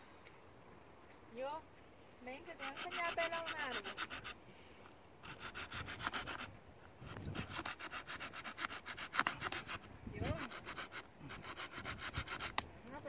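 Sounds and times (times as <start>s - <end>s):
blade scraping bark off branch: 2.5s - 4.4s, 5.2s - 13.0s.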